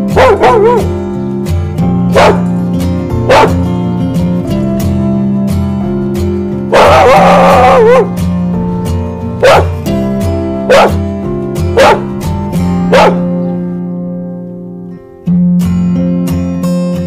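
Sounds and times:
acoustic guitar music: 0.0 - 17.0
large dog barking: 0.1 - 0.9, 2.1 - 2.5, 3.2 - 3.6, 6.7 - 8.2, 9.4 - 9.8, 10.6 - 11.0, 11.7 - 12.1, 12.9 - 13.4.

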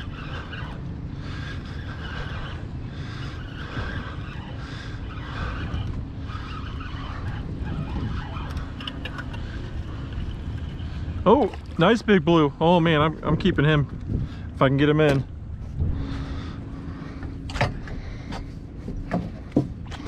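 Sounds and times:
low rumble: 0.0 - 20.0.

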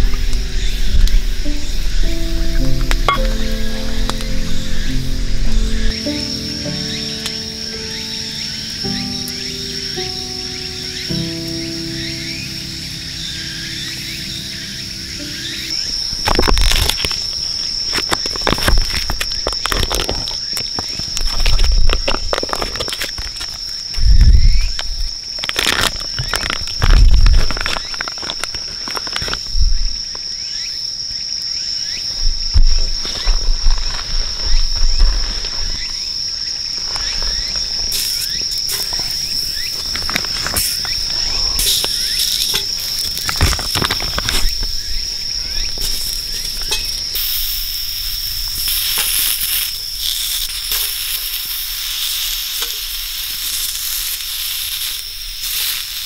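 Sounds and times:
sausages sizzling on a grill: 0.0 - 29.3, 33.2 - 56.0
high insect trill: 0.0 - 56.0
plastic packaging rustling: 15.8 - 23.8, 25.3 - 29.6, 36.7 - 47.0.

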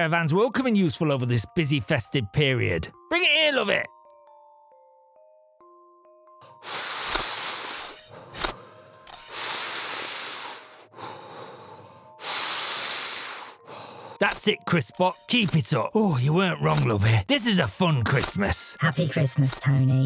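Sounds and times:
smoke hissing through mask: 6.6 - 10.9, 12.2 - 13.6.

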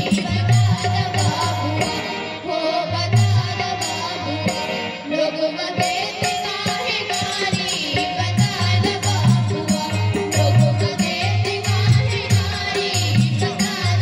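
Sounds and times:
girls singing into a microphone: 0.0 - 14.0
backing music with beat and bass: 7.3 - 14.0.

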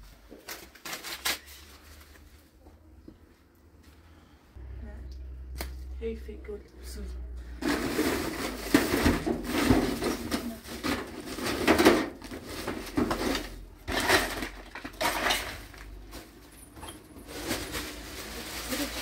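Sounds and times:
plastic bags and cloth rustling: 0.0 - 3.0, 7.6 - 19.0.

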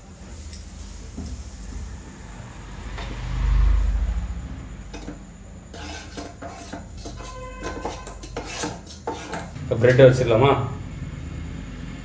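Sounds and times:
fork scraping metal grill plates: 4.9 - 9.6.

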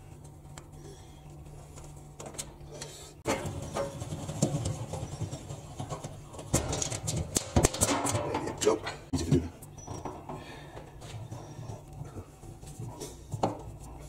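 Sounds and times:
metal scraping and rattling: 3.2 - 9.0.

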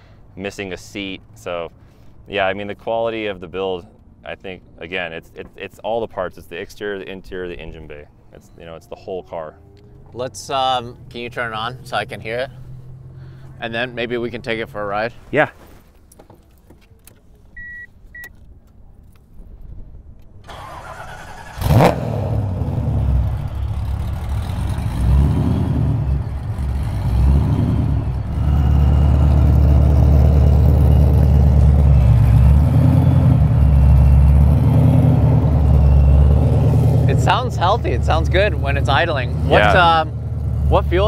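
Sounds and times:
car engine cranking and idling: 1.0 - 41.0
short beeps: 17.6 - 18.3, 35.6 - 36.6.

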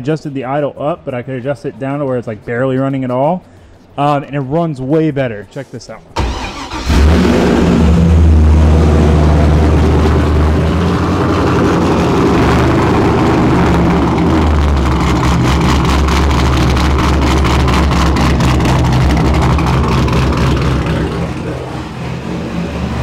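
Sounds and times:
car engine idling: 6.2 - 23.0.

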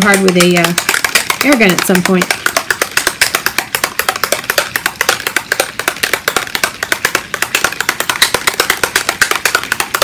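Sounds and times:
mixing ball rattling in bottle: 0.0 - 10.0.

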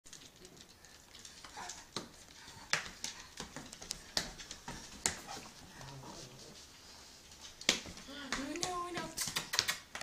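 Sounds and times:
palms slapping wooden floor: 1.2 - 6.0, 7.3 - 10.0.

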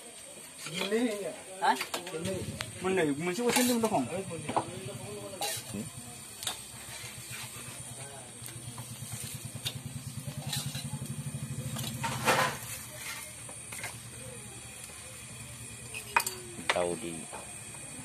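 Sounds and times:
small motorcycle engine running: 3.6 - 18.0
metal clinks of mug and spatula: 15.9 - 16.5.

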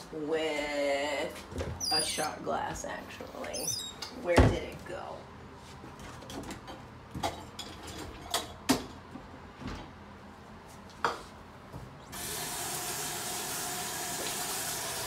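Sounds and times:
tap water running into sink: 12.1 - 15.0.

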